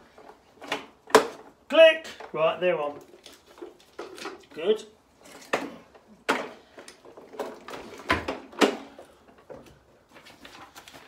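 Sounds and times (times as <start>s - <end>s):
plastic parts knocking and clattering: 0.0s - 11.0s.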